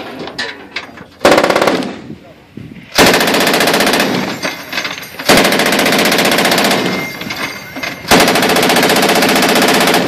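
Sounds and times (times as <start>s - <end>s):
heavy machine gun bursts: 3.0s - 10.0s.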